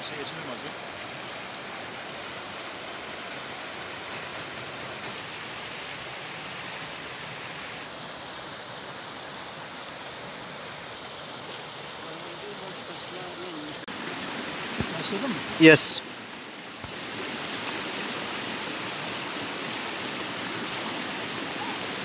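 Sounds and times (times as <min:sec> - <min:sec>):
stream running over stones: 0:00.0 - 0:22.0.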